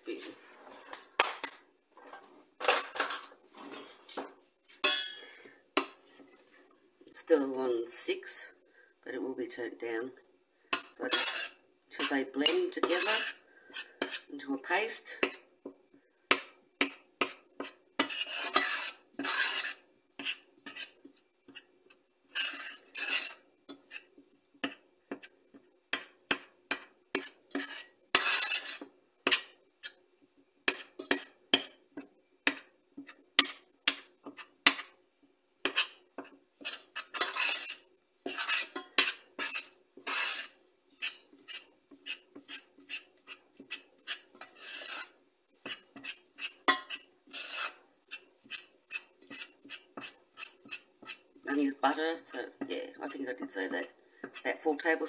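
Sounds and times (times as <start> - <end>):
metal spoon scraping a pot: 10.7 - 15.4, 16.8 - 25.3, 25.9 - 30.0, 30.7 - 31.8, 35.6 - 55.0.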